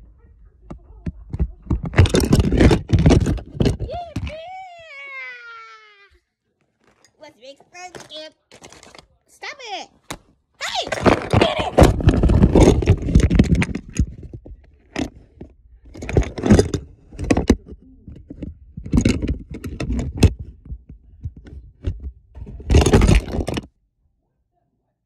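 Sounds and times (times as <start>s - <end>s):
phone handling scraping: 1.2s - 4.3s, 7.8s - 9.1s, 10.0s - 23.7s.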